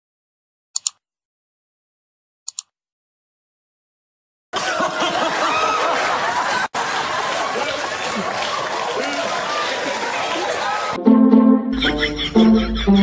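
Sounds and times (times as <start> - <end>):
computer mouse double clicks: 0.8 - 1.0, 2.5 - 2.7
voices chattering: 6.8 - 11.0.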